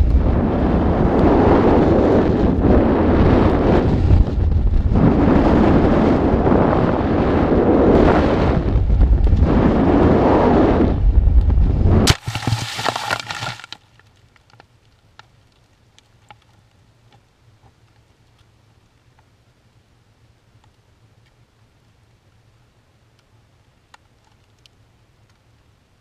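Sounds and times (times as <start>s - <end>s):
wind rushing over microphone: 0.0s - 13.6s
crash of object hitting ground: 12.1s - 13.8s
crackling and rustling in grass: 12.1s - 19.2s
faint ticks: 23.1s - 25.7s.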